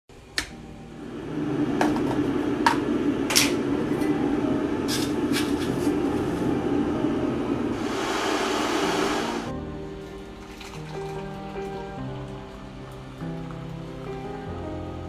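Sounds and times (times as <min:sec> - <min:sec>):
steady mechanical hum: 0:00.1 - 0:09.5
hiss: 0:07.8 - 0:09.5.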